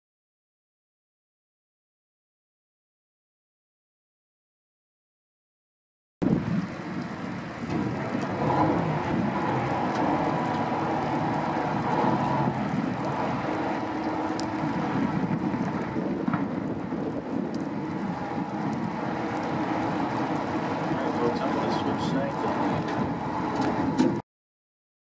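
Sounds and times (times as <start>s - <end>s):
low rumble of ice breaking: 6.2s - 24.2s.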